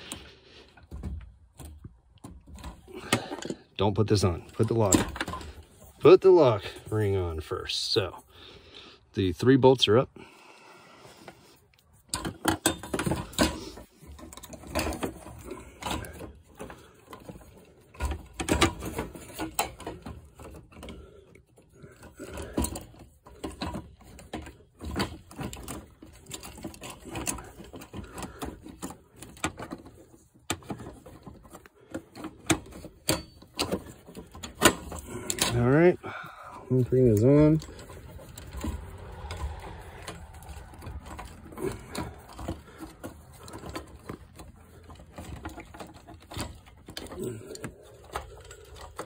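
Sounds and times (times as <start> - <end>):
clicks knocks and rattles of plastic part: 12.1 - 35.6, 37.1 - 49.0.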